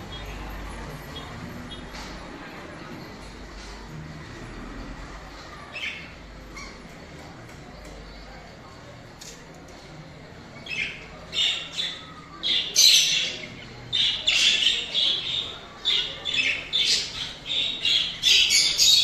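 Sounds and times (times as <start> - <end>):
budgerigars chattering and squawking: 10.6 - 19.0.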